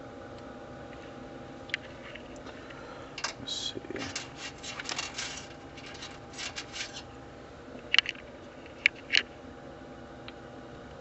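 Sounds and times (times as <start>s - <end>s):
water pump humming: 0.0s - 11.0s
handling rustling: 3.2s - 7.2s.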